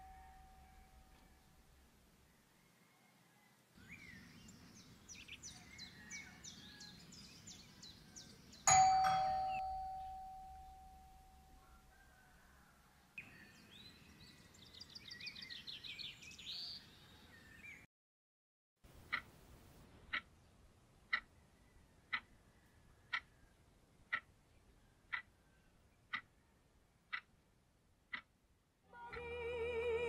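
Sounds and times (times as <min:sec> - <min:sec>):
loud bell-like ding: 0:00.0 - 0:01.3, 0:08.7 - 0:11.6
birds chirping: 0:03.8 - 0:10.4, 0:13.2 - 0:17.9.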